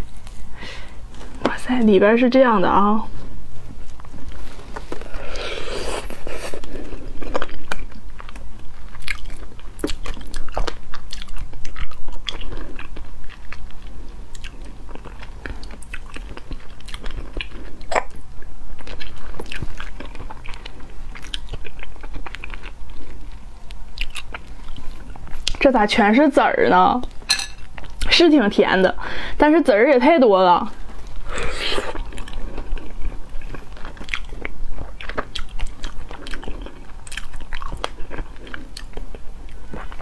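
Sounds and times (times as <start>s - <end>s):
wet chewing and mouth smacks: 6.0s - 25.6s, 31.0s - 40.0s.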